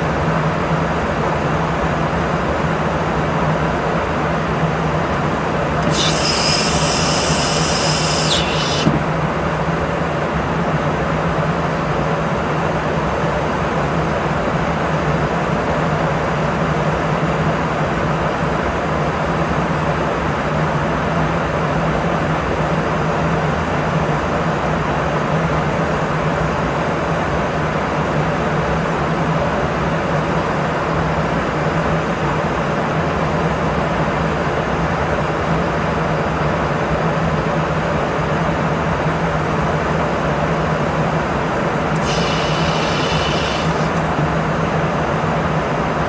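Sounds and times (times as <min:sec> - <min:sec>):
high hiss: 0:05.8 - 0:09.2, 0:41.9 - 0:44.2.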